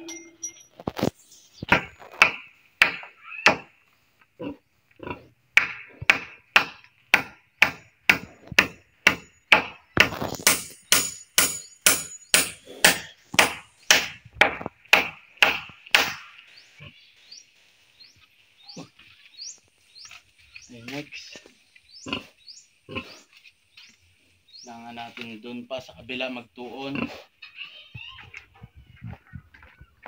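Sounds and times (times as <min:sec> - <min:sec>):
hammer striking wood: 0:01.7 - 0:03.7, 0:05.6 - 0:16.3.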